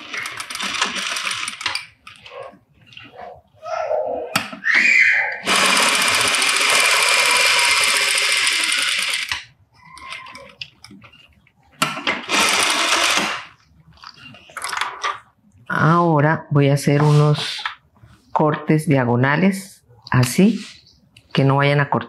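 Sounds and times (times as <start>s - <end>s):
sewing machine stitching: 0.0s - 2.3s, 5.4s - 11.2s, 12.0s - 13.6s.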